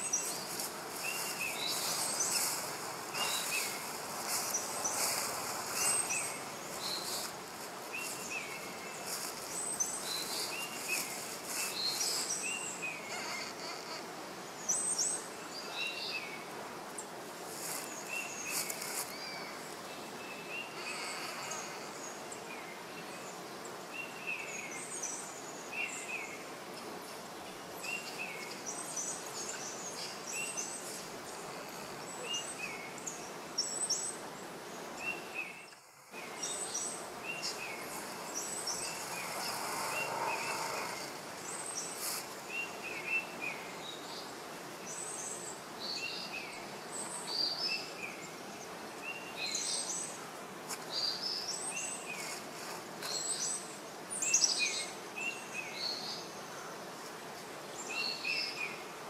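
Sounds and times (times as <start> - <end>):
high insect buzzing: 0.0 - 14.5, 20.6 - 22.4, 35.9 - 42.5
small birds chirping: 0.0 - 59.0
steady hiss: 0.0 - 59.0.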